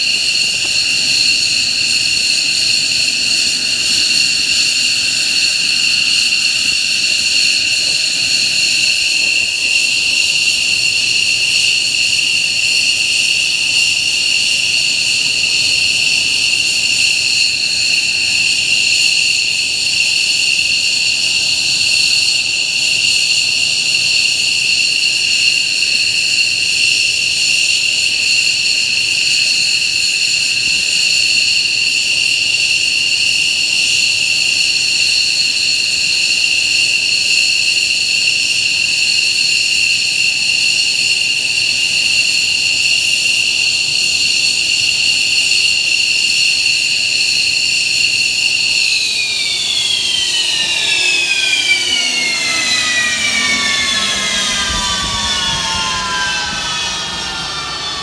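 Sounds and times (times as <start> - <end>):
jet turbine whine: 0.0 - 58.0.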